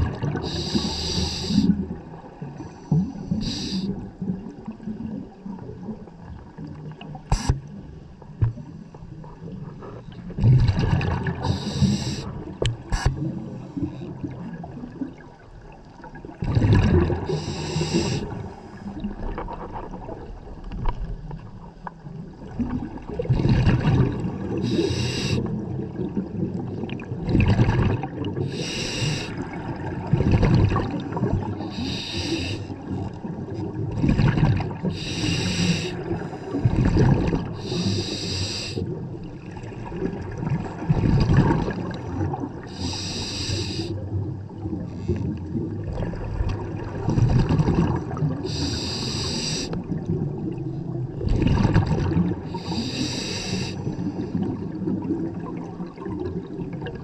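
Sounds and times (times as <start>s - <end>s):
exhaled bubbles rumbling: 0.0s - 57.0s
regulator inhale hiss: 0.4s - 1.8s, 2.9s - 4.0s, 7.3s - 7.6s, 11.4s - 13.2s, 17.3s - 18.9s, 24.6s - 25.5s, 28.4s - 29.4s, 31.6s - 32.8s, 34.9s - 36.6s, 37.6s - 38.8s, 42.7s - 44.0s, 48.4s - 49.8s, 52.5s - 54.3s.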